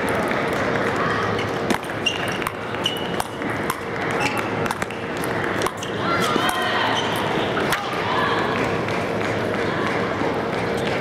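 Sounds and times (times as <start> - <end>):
murmur of a large hall: 0.0 - 11.0
short high squeaks: 2.0 - 3.2.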